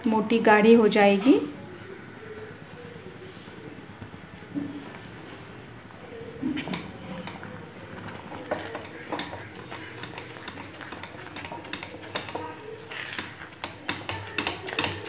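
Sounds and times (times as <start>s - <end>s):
spatula scraping a steel pan: 8.2s - 15.0s.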